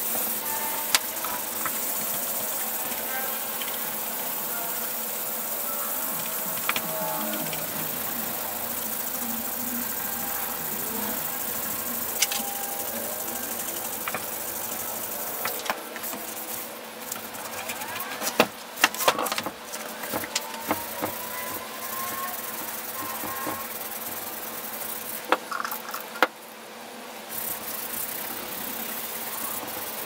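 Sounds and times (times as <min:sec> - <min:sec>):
cloth rubbing on metal housing: 0:00.0 - 0:26.2
sander knocking and clunking: 0:18.3 - 0:21.8.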